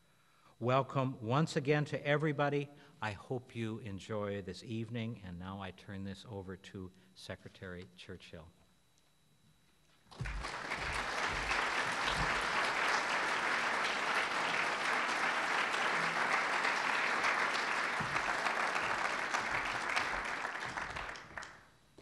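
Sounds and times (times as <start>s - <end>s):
audience applauding: 10.1s - 21.7s.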